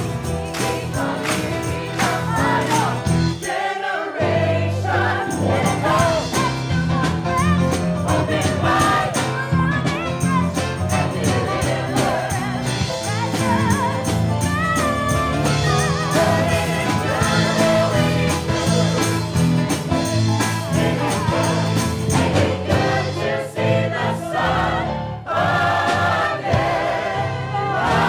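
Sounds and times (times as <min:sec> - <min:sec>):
band with steady beat: 0:00.0 - 0:03.7, 0:04.3 - 0:23.7
chorus singing gospel-style: 0:00.0 - 0:28.0.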